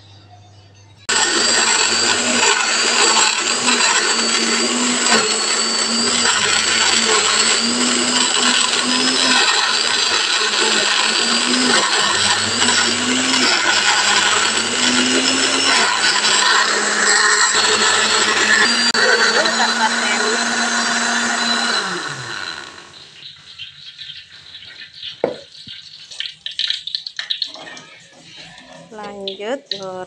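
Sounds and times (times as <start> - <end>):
electric blender grinding: 1.1 - 23.3.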